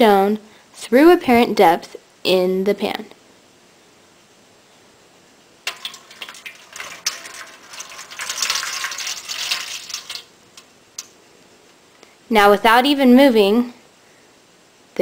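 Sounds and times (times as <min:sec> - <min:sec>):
water splashing into a tin pan: 0:05.6 - 0:11.2.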